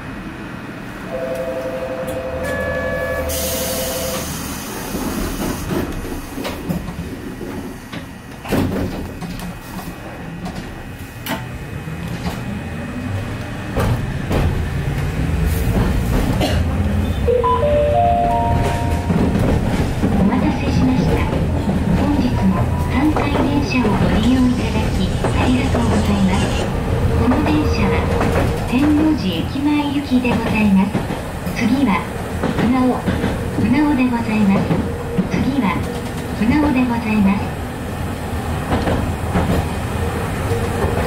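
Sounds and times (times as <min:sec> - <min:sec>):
tram rumbling with clicks: 0:00.0 - 0:41.0
steady two-note tone: 0:17.3 - 0:19.2.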